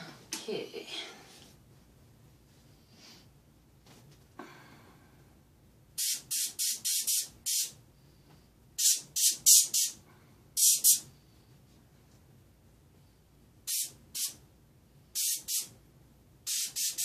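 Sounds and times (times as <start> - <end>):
airbrush spraying bursts: 6.0 - 7.8, 8.8 - 10.0, 10.6 - 11.1, 13.7 - 14.4, 15.2 - 15.7, 16.4 - 17.0.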